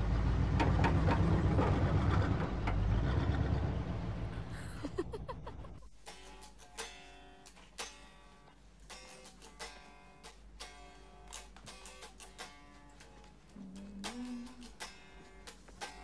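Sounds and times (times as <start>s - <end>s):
guitar plucking and strumming: 5.8s - 16.0s.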